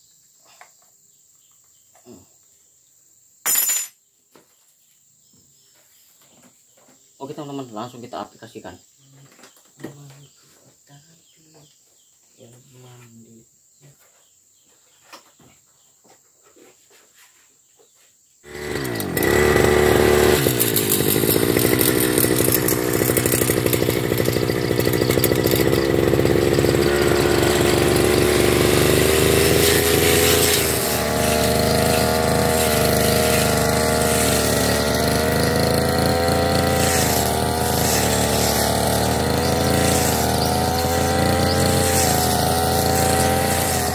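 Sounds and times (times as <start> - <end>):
brush cutter cutting grass: 18.4 - 43.9.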